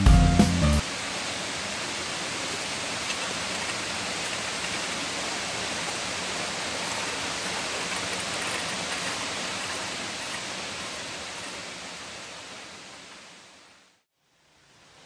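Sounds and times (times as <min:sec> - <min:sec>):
waterfall roaring: 0:00.8 - 0:13.9.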